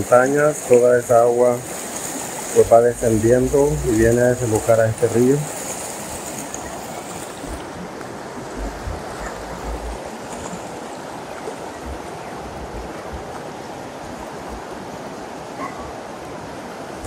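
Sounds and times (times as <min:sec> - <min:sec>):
flooded river rushing: 0:00.0 - 0:17.0
low thuds: 0:08.4 - 0:10.2.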